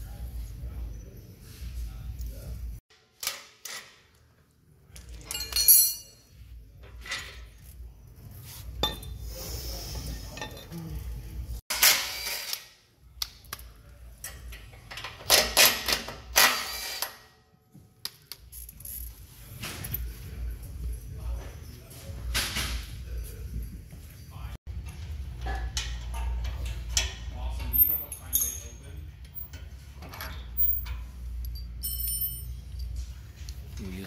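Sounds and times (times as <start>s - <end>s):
tools and steel parts clattering: 4.9s - 7.9s, 8.7s - 9.3s, 10.1s - 11.1s, 14.1s - 17.2s, 18.4s - 21.1s, 24.8s - 34.0s.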